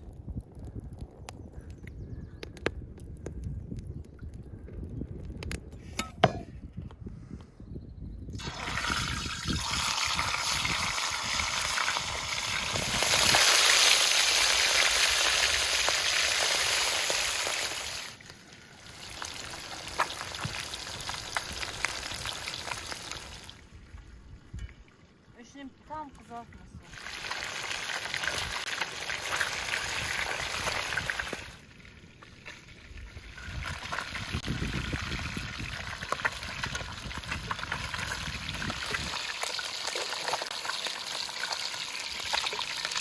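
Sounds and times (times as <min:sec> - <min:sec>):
fish sizzling in hot oil: 0:08.4 - 0:23.6, 0:26.9 - 0:32.0, 0:32.7 - 0:43.0.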